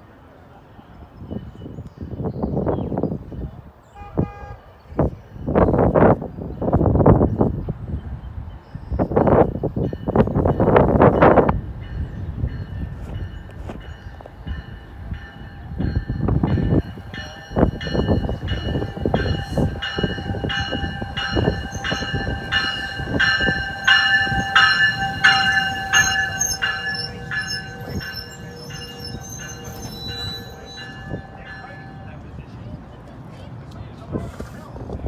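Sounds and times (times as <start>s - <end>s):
train bell ringing: 1.2s - 1.9s, 9.3s - 32.8s
train rumble and wheel knocks: 9.0s - 35.0s
thin steady squeal: 15.4s - 32.4s.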